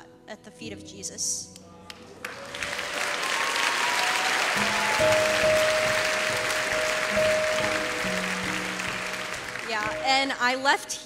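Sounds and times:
soft instrumental worship music: 0.0s - 11.0s
congregation applauding: 1.9s - 10.4s.

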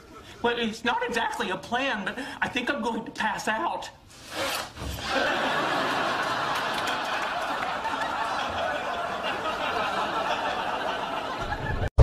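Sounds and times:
studio audience laughing: 5.0s - 12.0s.

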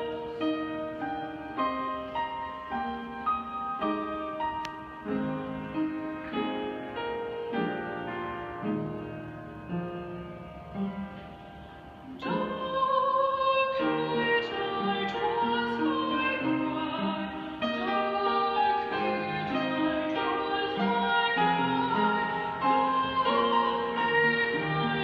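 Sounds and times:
piano accompaniment: 0.0s - 25.0s
woman singing: 12.1s - 25.0s.

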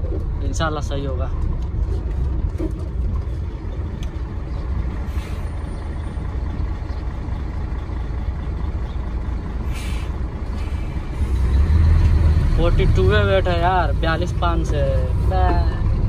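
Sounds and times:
diesel truck engine idling: 0.0s - 16.0s
air brake hisses: 5.1s - 5.6s, 9.7s - 11.4s.

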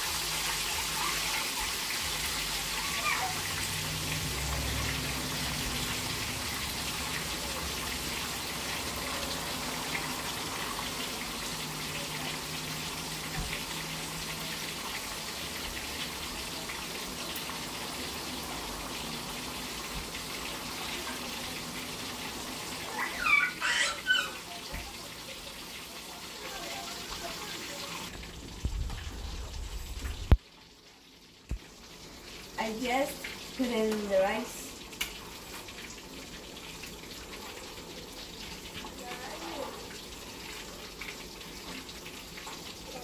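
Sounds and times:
pot of broth boiling: 0.0s - 24.2s
oil sizzling in frying pan: 0.0s - 43.0s.

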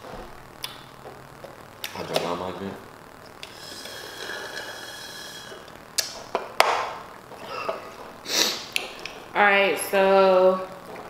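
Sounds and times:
slurping air through a straw: 3.4s - 5.7s.

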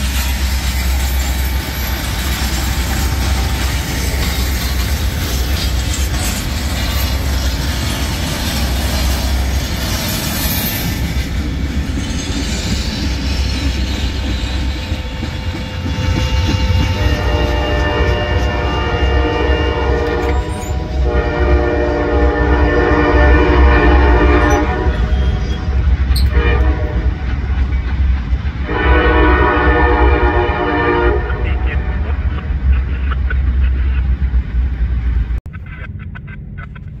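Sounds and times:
wheels clattering over rails: 0.0s - 17.4s
train rumbling past: 0.0s - 37.0s.

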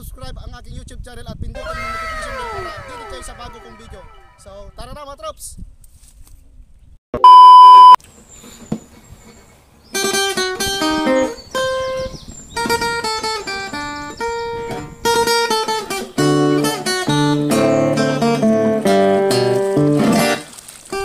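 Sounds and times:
bass line: 1.6s - 4.8s
test-pattern beep: 7.2s - 8.0s
plucked acoustic guitar melody: 10.0s - 21.0s.

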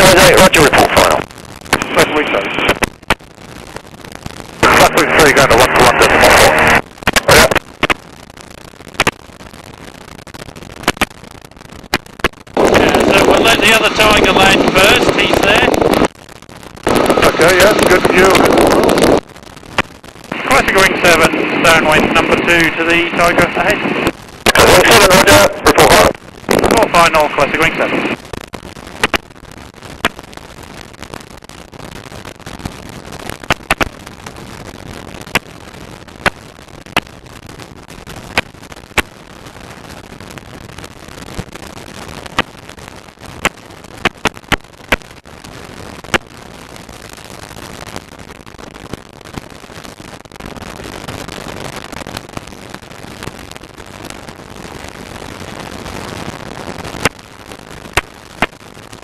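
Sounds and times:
sharp cracks: 0.0s - 59.0s
aircraft engine and slipstream rush: 4.6s - 6.8s, 12.6s - 15.8s, 20.3s - 26.1s.

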